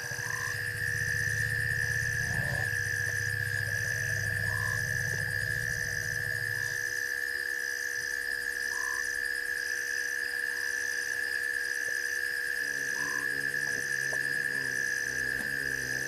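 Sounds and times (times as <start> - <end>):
low hum: 0.0 - 6.9
steady high frog trill: 0.0 - 7.0.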